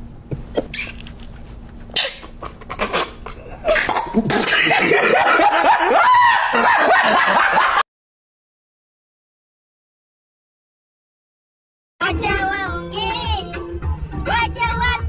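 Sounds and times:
stifled laughter snorts: 0:01.8 - 0:04.9
loud laughter: 0:02.0 - 0:07.8.

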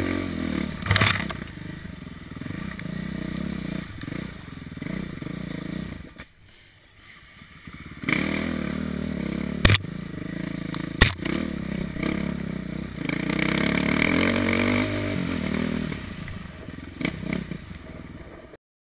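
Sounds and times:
dirt bike engine: 0:00.0 - 0:18.6
sharp knocks: 0:11.0 - 0:11.3.

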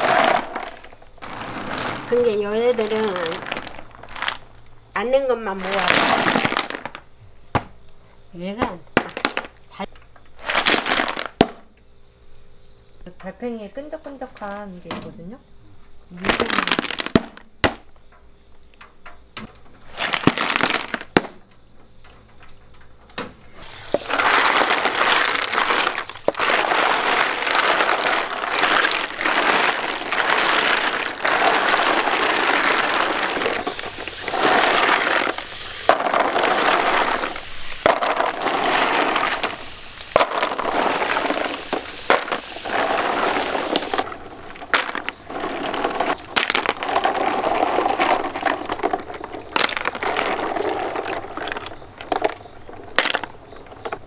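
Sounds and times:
shells scraping under spray: 0:00.0 - 0:04.5, 0:23.6 - 0:52.3
snail shells clattering: 0:00.0 - 0:04.8, 0:23.6 - 0:54.0
hose nozzle spraying water: 0:23.6 - 0:44.0.

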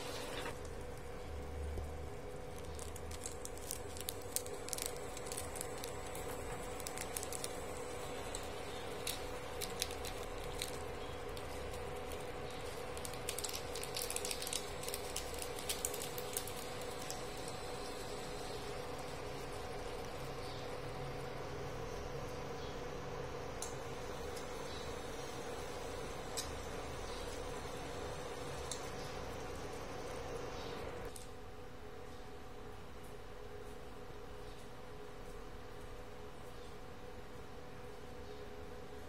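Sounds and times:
steady low hum: 0:00.0 - 0:39.0
foil sachets handled: 0:02.4 - 0:20.6
light clicks and crackles: 0:02.5 - 0:17.9.

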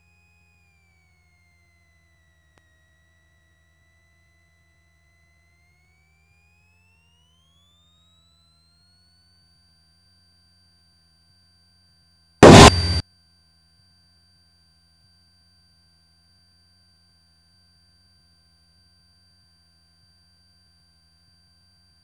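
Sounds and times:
faint electrical whine: 0:12.4 - 0:13.0
radio static burst: 0:12.4 - 0:13.0.

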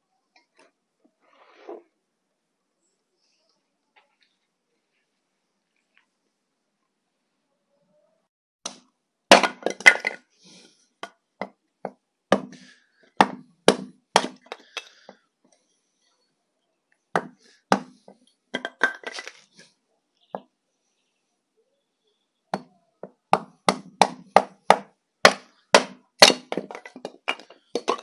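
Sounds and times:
sharp knocks and cracks: 0:23.3 - 0:28.0.

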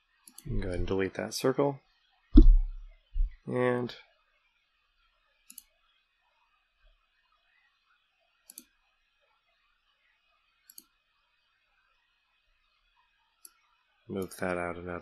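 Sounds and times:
mouse button clicking: 0:02.4 - 0:03.3.

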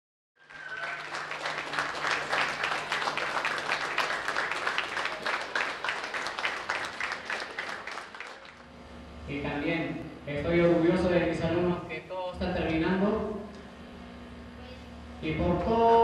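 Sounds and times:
crowd applauding: 0:00.4 - 0:08.9.

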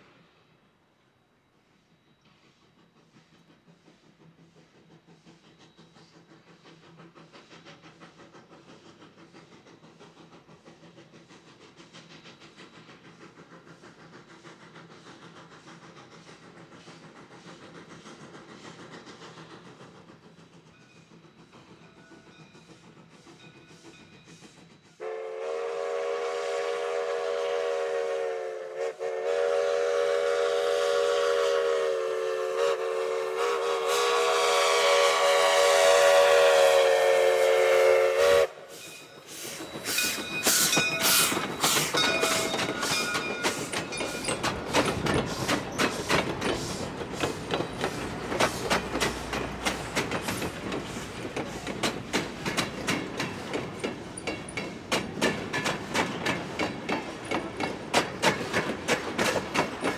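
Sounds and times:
train wheels clattering over rails: 0:02.0 - 0:28.4, 0:38.8 - 0:59.9
steam locomotive whistle: 0:25.0 - 0:43.7.

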